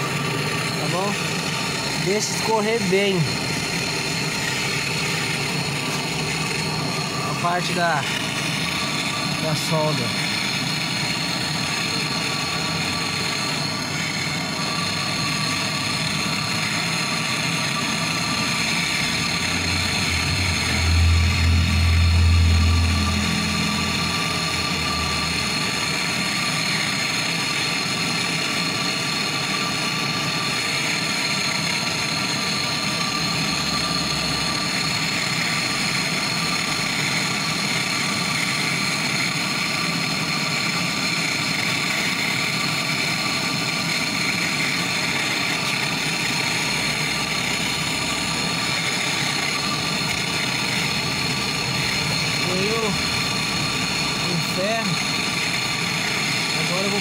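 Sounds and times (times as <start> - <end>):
gas torch hissing: 0.0 - 57.0
low rumble: 19.8 - 25.8.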